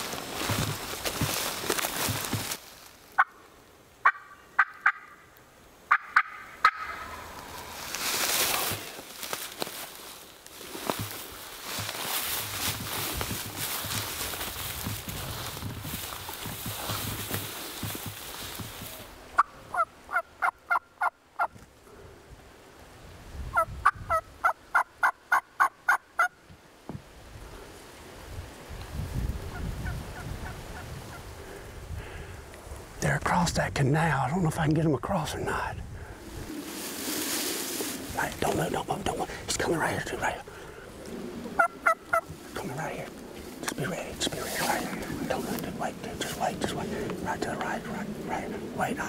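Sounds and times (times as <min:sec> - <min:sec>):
short crunches: 0:00.0 - 0:02.7
footsteps in dry grass: 0:00.0 - 0:03.2, 0:06.7 - 0:19.3, 0:34.1 - 0:49.0
turkey calls: 0:03.2 - 0:03.4, 0:04.0 - 0:05.3, 0:05.9 - 0:07.7, 0:19.4 - 0:21.5, 0:23.6 - 0:26.4, 0:41.0 - 0:42.5
turkey call notes: 0:04.0 - 0:05.3, 0:05.9 - 0:07.6, 0:41.6 - 0:42.5.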